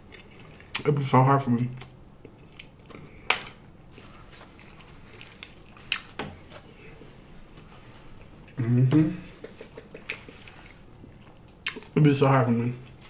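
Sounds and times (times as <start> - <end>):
chewing: 0.0 - 0.9, 1.8 - 3.2, 3.9 - 7.0, 9.8 - 12.0.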